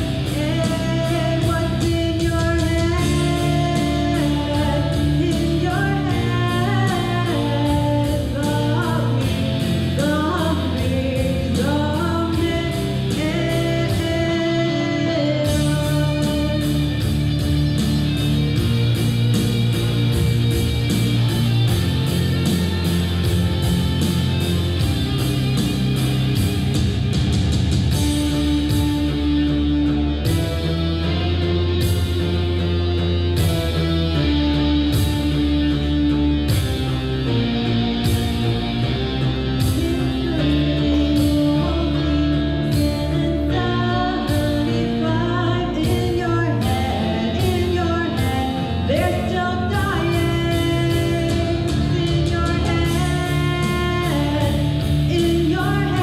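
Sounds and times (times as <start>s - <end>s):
woman singing rock song: 0.0s - 18.7s, 38.0s - 56.0s
rock band with guitar and beat: 0.0s - 56.0s.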